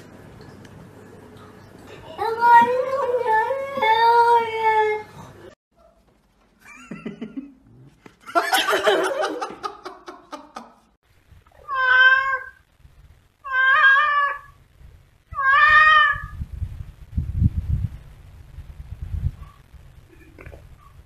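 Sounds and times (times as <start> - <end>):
cat meowing: 11.6 - 12.6, 13.4 - 14.6, 15.3 - 16.4.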